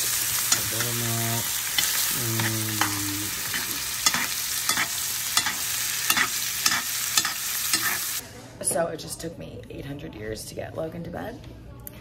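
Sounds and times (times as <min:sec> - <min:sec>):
steak sizzling in a skillet: 0:00.0 - 0:08.2
spoon clinking against pan: 0:01.7 - 0:08.0.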